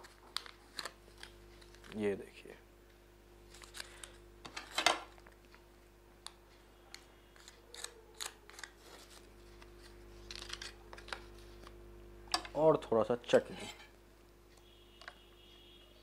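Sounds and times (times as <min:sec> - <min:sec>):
aluminium foil crinkling: 0:00.0 - 0:02.1, 0:03.5 - 0:05.6, 0:07.4 - 0:11.7.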